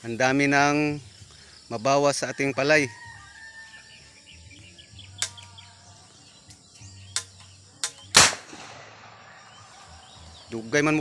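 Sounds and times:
sharp clicks: 5.2s - 5.5s, 6.5s - 8.6s
loud cannon bang: 8.2s - 9.3s.

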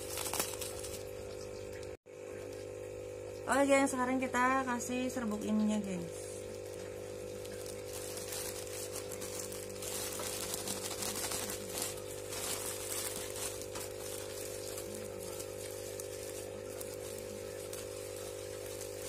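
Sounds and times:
plastic bag crinkling: 0.0s - 1.2s, 5.4s - 19.0s.

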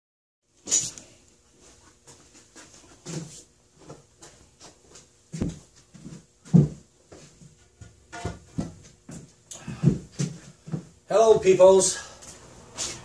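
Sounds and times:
footsteps: 0.6s - 13.0s
handling thuds and knocks: 5.4s - 11.6s.

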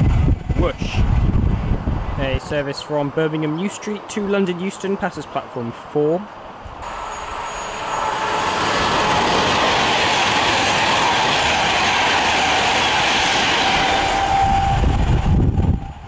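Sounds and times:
low rumble: 0.0s - 2.2s
electric train passing at speed: 0.0s - 4.4s, 6.4s - 16.0s.

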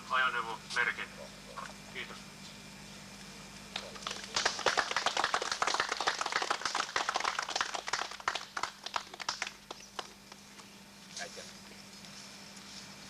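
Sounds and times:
small group clapping: 3.7s - 10.6s.

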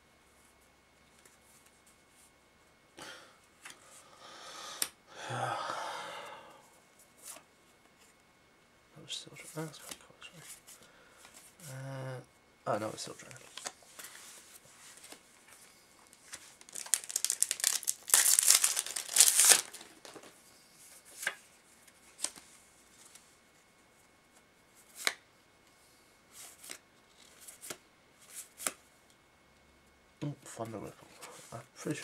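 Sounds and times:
wrapper tearing and crinkling: 16.2s - 20.3s.

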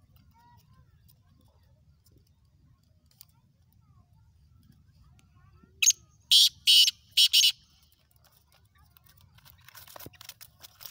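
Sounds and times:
francolin harsh grating call: 6.3s - 7.6s.

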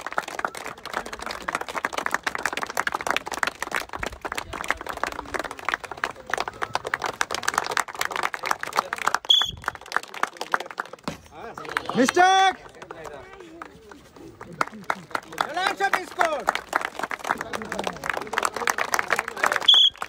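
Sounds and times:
crowd clapping: 0.0s - 20.0s.

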